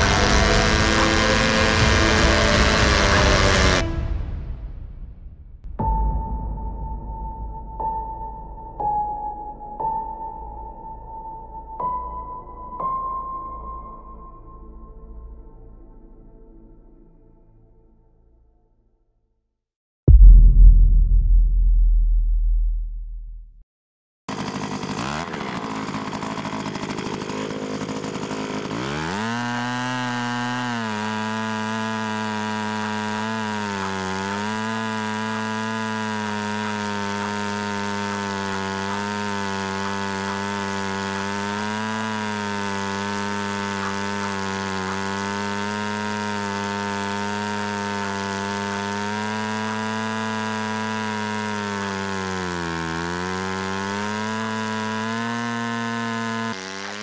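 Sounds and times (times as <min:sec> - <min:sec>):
small petrol engine buzzing: 0:00.0 - 0:04.0, 0:24.3 - 0:57.0.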